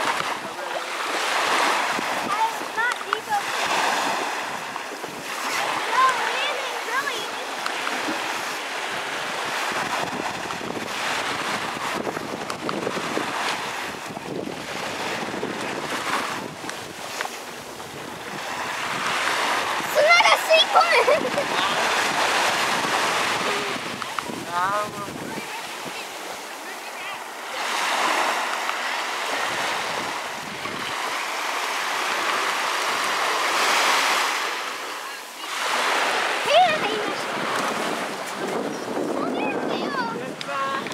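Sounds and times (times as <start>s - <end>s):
small waves on sandy shore: 0.0s - 40.9s
wind buffeting microphone: 1.4s - 34.5s, 35.6s - 40.9s.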